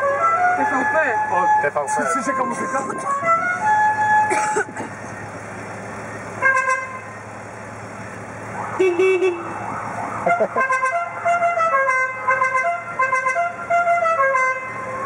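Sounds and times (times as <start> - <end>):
car horns sounding: 0.0 - 5.3, 6.3 - 7.4, 8.6 - 15.0
musical horn playing tune: 6.4 - 7.1, 8.8 - 9.6, 10.3 - 15.0.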